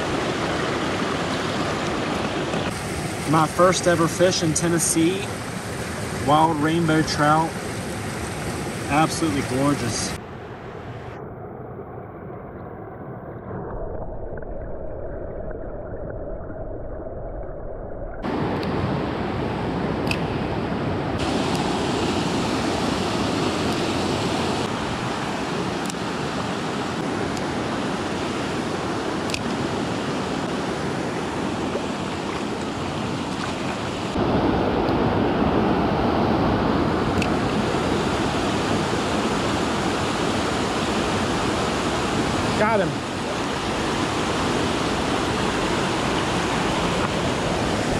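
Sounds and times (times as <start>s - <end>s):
creek rushing over rocks: 0.0s - 10.2s, 21.2s - 47.9s.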